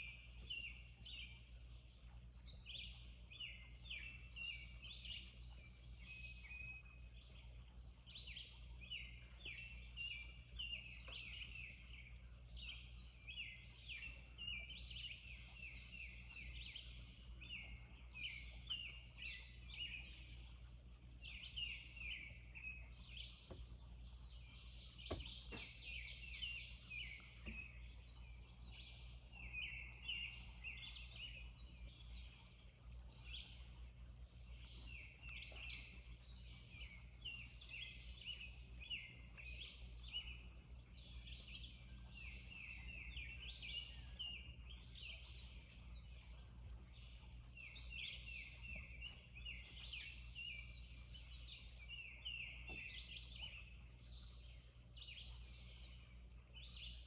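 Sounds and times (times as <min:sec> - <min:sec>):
faint low hum: 0:00.0 - 0:57.0
birds chirping in chorus: 0:02.4 - 0:57.0.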